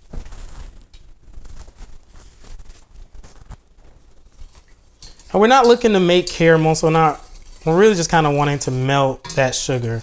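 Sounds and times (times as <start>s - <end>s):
spoon stirring in a metal saucepan: 4.3s - 10.0s.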